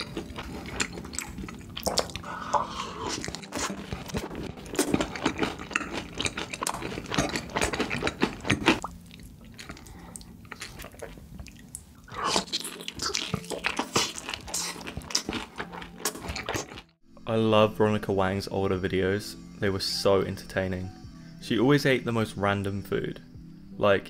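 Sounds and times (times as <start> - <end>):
crunchy chewing of fried chicken: 0.0 - 17.0.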